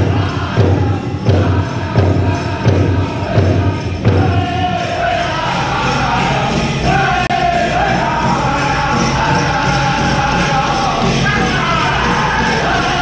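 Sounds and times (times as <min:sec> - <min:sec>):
large hand drum beaten: 0:00.0 - 0:04.9
drum group singing: 0:00.0 - 0:13.0.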